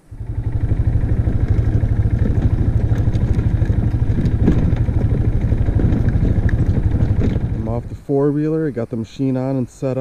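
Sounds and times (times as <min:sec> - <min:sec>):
quad engine running: 0:00.0 - 0:10.0
rattling knocks: 0:01.4 - 0:07.6.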